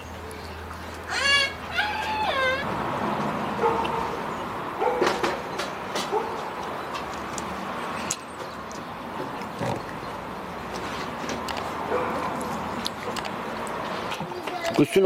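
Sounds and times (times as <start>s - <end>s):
animal whining: 1.1s - 2.7s.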